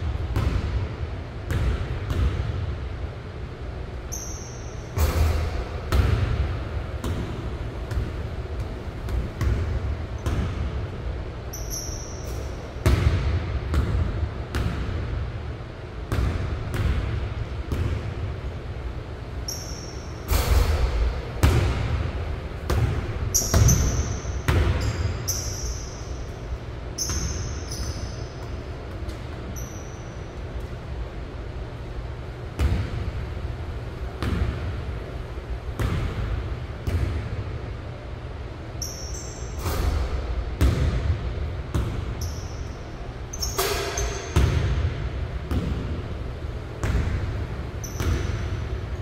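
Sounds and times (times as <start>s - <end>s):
basketball bouncing on wooden floor: 0.1s - 0.9s, 1.5s - 2.6s, 5.2s - 10.7s, 16.1s - 18.1s, 22.6s - 25.8s, 32.6s - 33.1s, 34.2s - 34.8s, 35.8s - 37.3s, 40.6s - 42.5s, 43.4s - 46.0s, 46.8s - 48.6s
sneaker squeaks: 4.0s - 6.0s, 11.3s - 12.8s, 19.4s - 20.8s, 23.2s - 30.7s, 38.7s - 40.9s, 41.8s - 44.8s, 46.8s - 48.9s.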